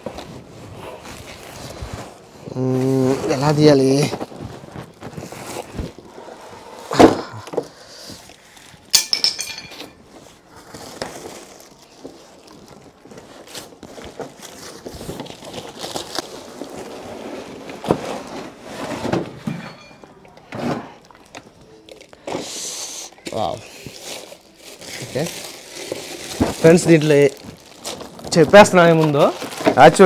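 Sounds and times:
cardboard scraping: 0.0 - 6.4, 13.2 - 19.4
plastic wrap rustling: 0.0 - 6.5, 9.8 - 20.0, 23.1 - 30.0.

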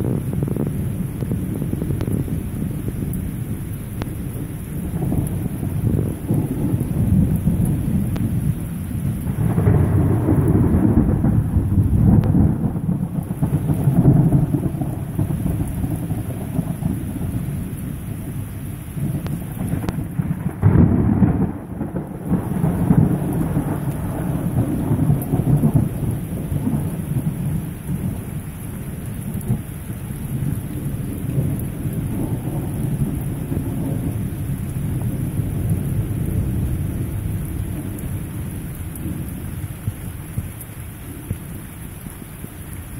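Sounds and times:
heavy rain pouring: 0.0 - 42.9
thunder rumbling: 0.0 - 42.9
thunder clap: 9.2 - 17.5, 19.0 - 28.2.

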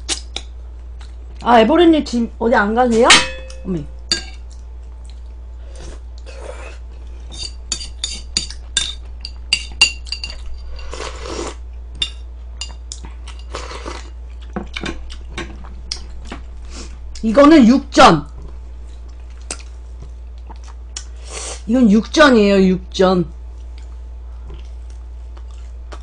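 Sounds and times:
metal tongs clinking on bowl: 2.9 - 4.5, 7.4 - 11.0.

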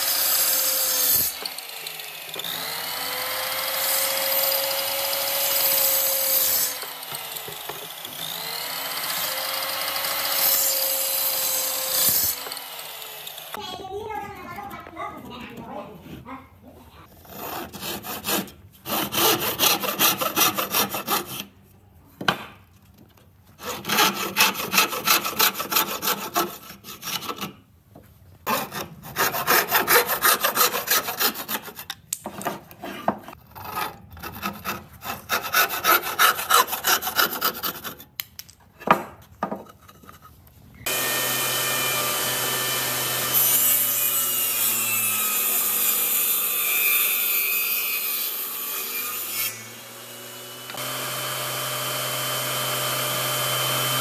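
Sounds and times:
handsaw cutting wood: 0.0 - 13.6, 17.2 - 21.6, 23.6 - 27.7, 28.4 - 38.1, 40.8 - 54.0
table saw running: 0.0 - 13.6, 40.9 - 54.0.

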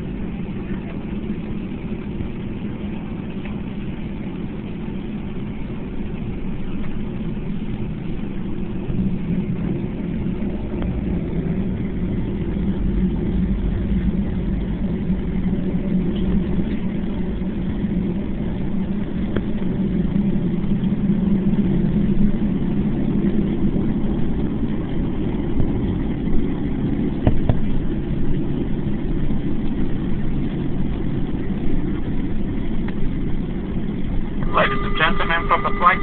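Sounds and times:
jet engines low drone in cabin: 0.0 - 36.0.

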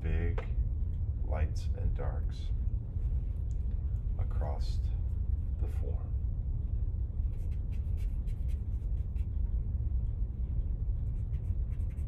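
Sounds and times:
steady low rumble: 0.0 - 12.0
charcoal scratching on paper: 7.3 - 9.3, 11.0 - 12.0.

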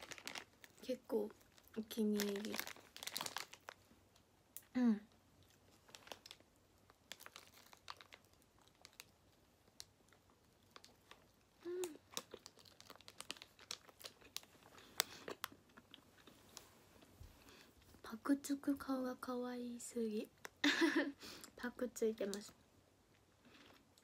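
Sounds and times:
plastic wrapper crinkling: 0.0 - 4.2, 5.4 - 16.7.

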